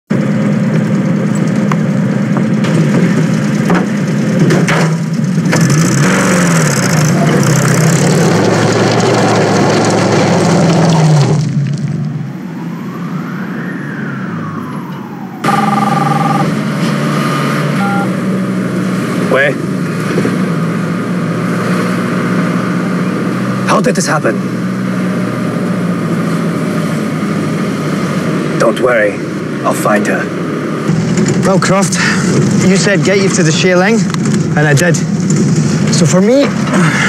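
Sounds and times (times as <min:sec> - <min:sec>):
vehicle engine running hard: 0:00.1 - 0:13.4, 0:14.5 - 0:37.0
city traffic: 0:00.1 - 0:37.0
road noise: 0:00.1 - 0:37.0
siren-like rising and falling tone: 0:12.2 - 0:18.2.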